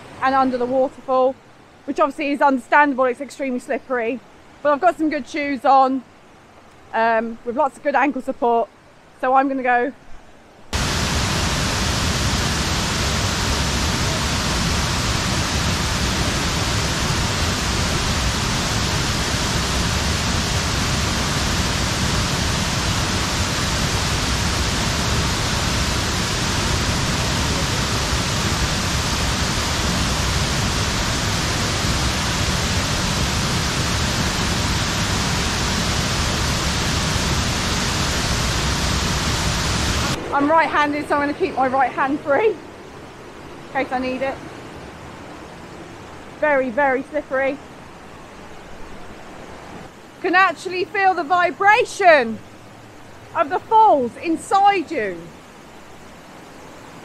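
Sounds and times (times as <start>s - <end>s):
waterfall rushing: 10.7s - 46.4s.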